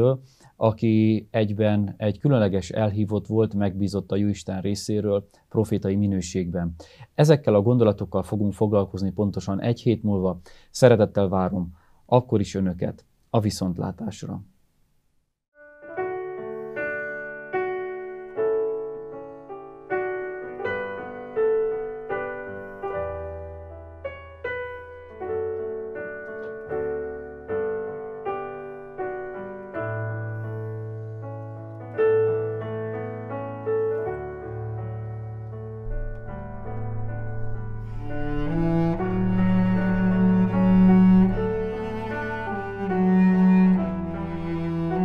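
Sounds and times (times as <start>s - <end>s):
slow piano music: 15.5s - 45.0s.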